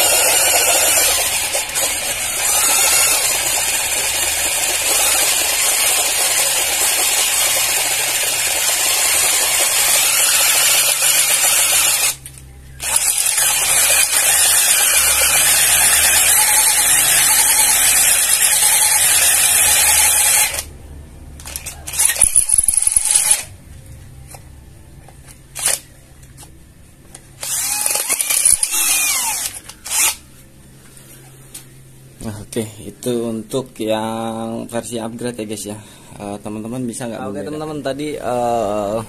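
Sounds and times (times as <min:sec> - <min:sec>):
cordless drill boring into steel: 0:00.0 - 0:12.2, 0:12.8 - 0:20.7, 0:21.5 - 0:23.4, 0:27.4 - 0:30.2
drill clicks: 0:00.0 - 0:20.7, 0:21.4 - 0:23.5, 0:27.4 - 0:30.2.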